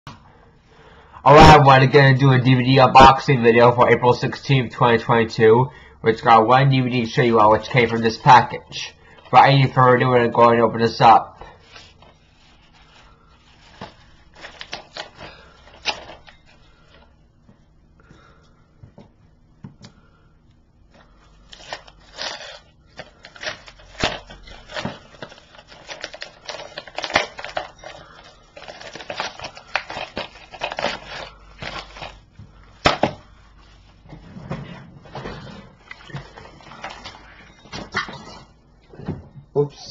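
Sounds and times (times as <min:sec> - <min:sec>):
padded envelope crinkling: 0:11.6 - 0:17.1, 0:21.0 - 0:33.9.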